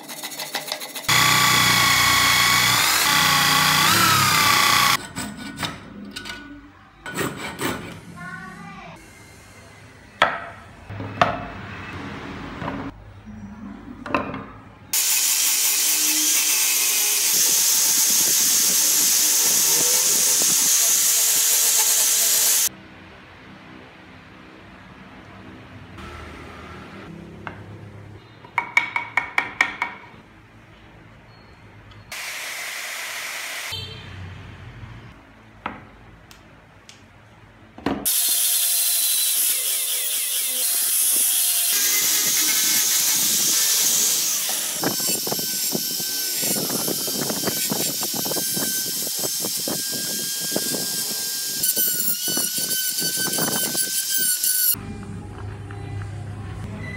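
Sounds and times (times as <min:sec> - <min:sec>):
angle grinder sanding wood: 0:00.0 - 0:05.0, 0:15.0 - 0:22.7
wooden knocks: 0:28.5 - 0:30.1.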